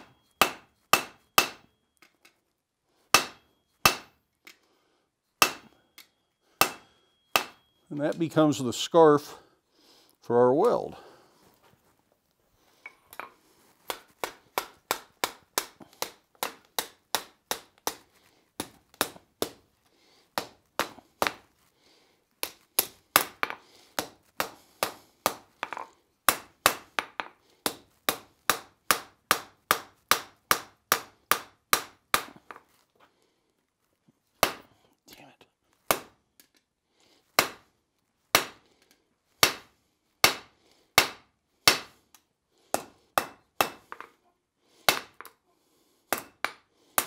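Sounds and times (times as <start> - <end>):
hammer striking steel on anvil: 0.0 - 2.1, 3.1 - 4.2, 5.4 - 8.2, 13.1 - 18.0, 39.4 - 41.9, 42.8 - 44.1, 46.1 - 46.6.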